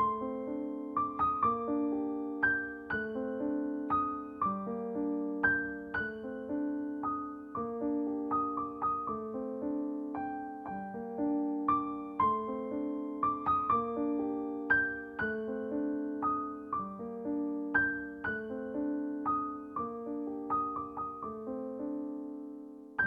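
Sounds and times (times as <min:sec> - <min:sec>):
gentle piano melody: 0:00.0 - 0:23.0.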